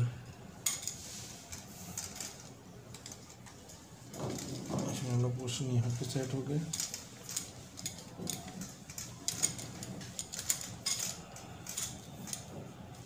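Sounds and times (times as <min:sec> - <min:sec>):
light stand clicks and rattles: 0:00.6 - 0:13.0.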